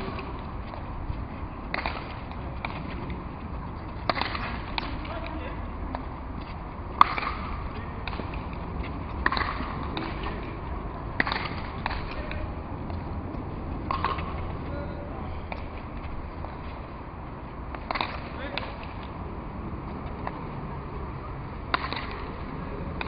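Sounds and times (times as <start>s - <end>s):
ball cracks off paddle and wall: 4.1s - 5.0s, 7.0s - 7.5s, 9.2s - 10.3s, 11.2s - 12.2s, 21.7s - 22.2s.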